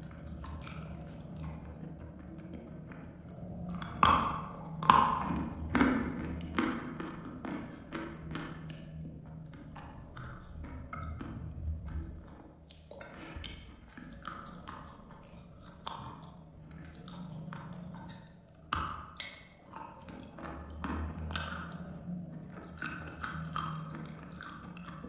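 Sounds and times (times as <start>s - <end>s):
chewing crunchy chalk: 0.0s - 7.4s, 8.6s - 25.0s.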